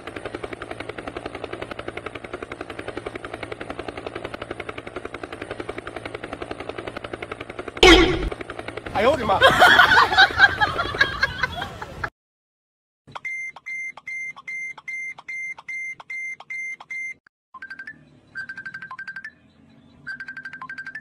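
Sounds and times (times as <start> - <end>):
low fast-pulsing phone tone: 7.8 - 8.3
phone alarm beeping: 7.8 - 8.3
loud jumble of sound: 7.8 - 8.4.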